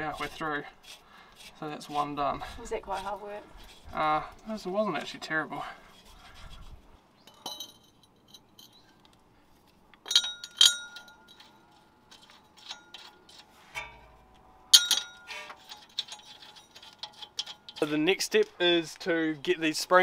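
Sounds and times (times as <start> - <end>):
steel bolt clinking on metal: 7.3 - 9.1, 10.0 - 18.0.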